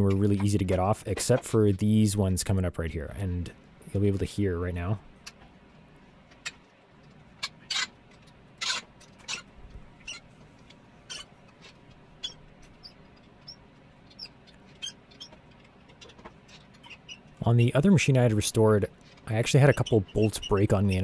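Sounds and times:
bolts squeaking and creaking: 0:00.0 - 0:02.0, 0:06.4 - 0:10.3, 0:11.0 - 0:21.0.

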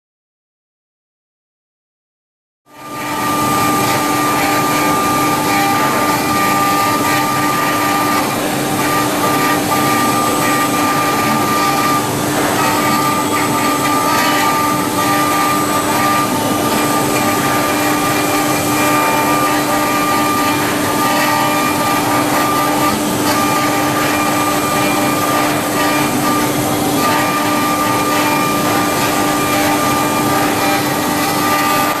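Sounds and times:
router spindles whining: 0:02.8 - 0:32.0
stone cutting and grinding: 0:02.8 - 0:32.0.

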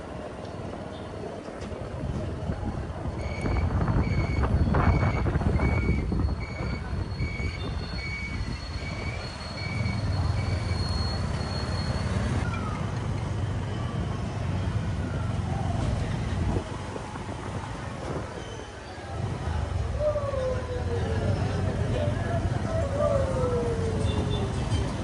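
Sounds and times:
scooter engine and road rumble: 0:00.0 - 0:25.0
high electronic beeps: 0:03.2 - 0:12.2.

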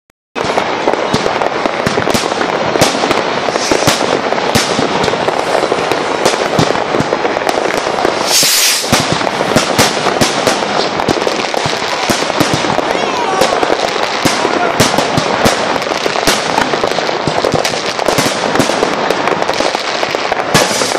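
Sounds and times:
fireworks banging and crackling: 0:00.4 - 0:20.9
brief hiss: 0:08.2 - 0:09.0.

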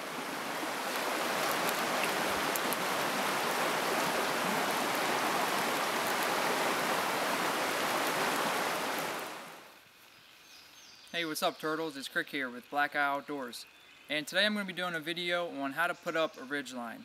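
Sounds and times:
stream water rushing over rocks: 0:00.0 - 0:09.7.

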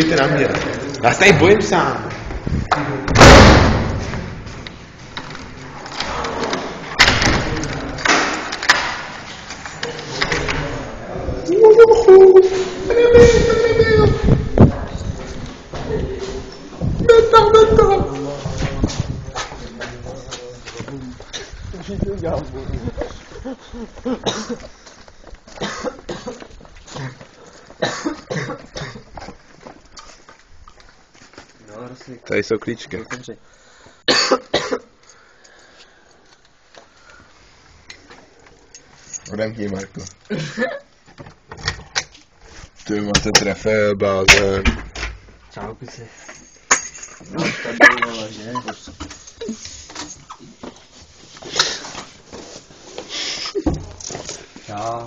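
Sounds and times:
man coughing: 0:24.1 - 0:24.7, 0:25.5 - 0:29.1, 0:34.1 - 0:34.9, 0:40.3 - 0:40.9.

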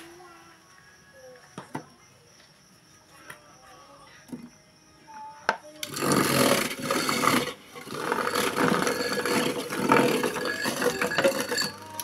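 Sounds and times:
ice shaver blade grinding: 0:05.8 - 0:12.0.

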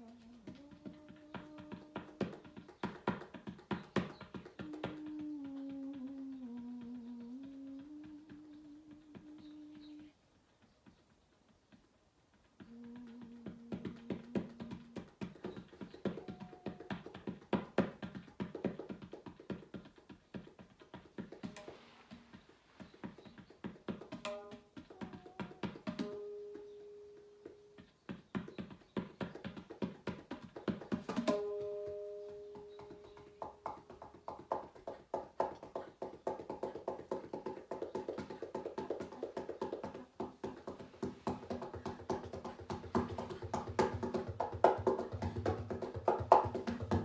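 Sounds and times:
tabla drumming: 0:00.0 - 0:09.9, 0:12.7 - 0:47.0.

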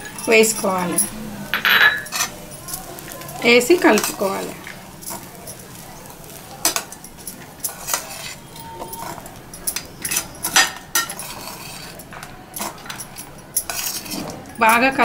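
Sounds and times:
spoon scraping metal pan: 0:07.6 - 0:12.0, 0:13.6 - 0:14.3.

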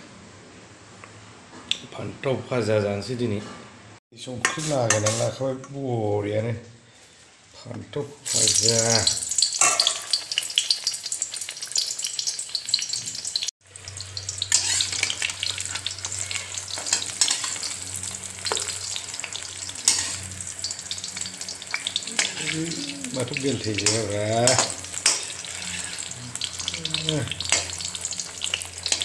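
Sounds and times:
metal spatula scraping: 0:04.4 - 0:05.4, 0:14.2 - 0:29.0
eggplant sizzling in oil: 0:08.2 - 0:29.0.

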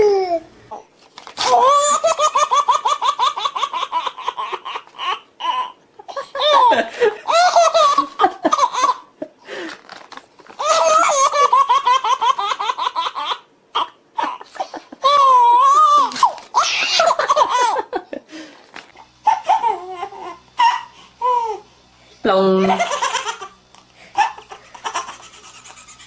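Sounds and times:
baby laughing: 0:01.4 - 0:09.2, 0:10.6 - 0:18.0, 0:19.2 - 0:21.6, 0:22.6 - 0:23.6, 0:24.2 - 0:26.0.

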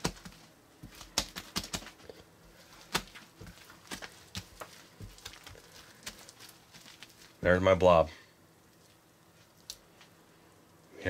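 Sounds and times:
slime squishing: 0:00.0 - 0:07.4
foam beads crackling: 0:03.2 - 0:07.4.

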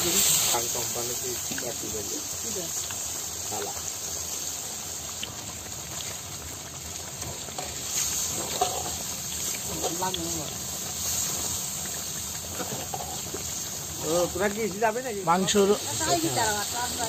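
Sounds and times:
curry sizzling and bubbling: 0:00.0 - 0:17.0
metal spatula stirring: 0:07.3 - 0:14.8.

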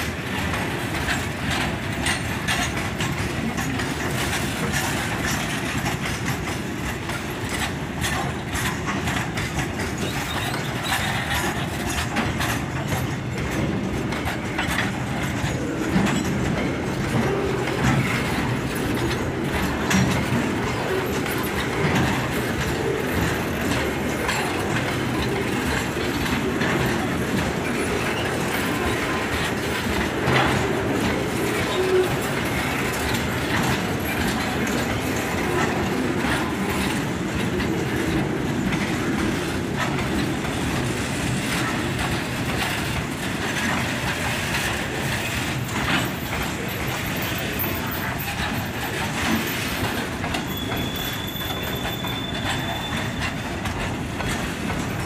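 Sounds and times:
freight train wheels rumbling: 0:00.0 - 0:55.0
wheels clickety-clack on rail joints: 0:00.0 - 0:55.0.

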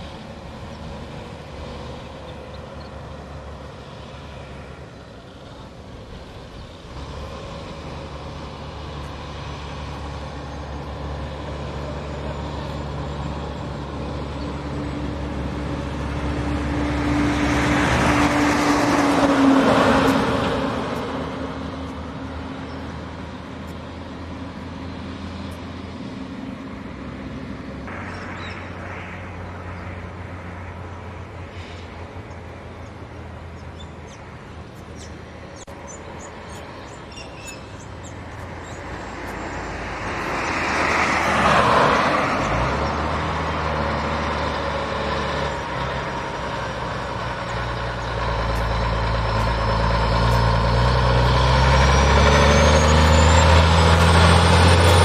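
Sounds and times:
deep diesel engine drone: 0:00.0 - 0:55.0
diesel truck engine: 0:00.0 - 0:55.0
loud rushing sound: 0:27.9 - 0:30.9.

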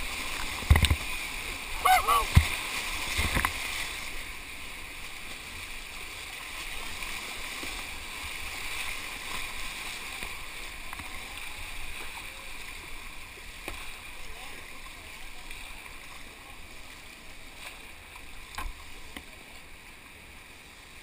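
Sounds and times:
wave splashing over camera: 0:00.0 - 0:15.7
river rapids rushing: 0:01.2 - 0:04.4.

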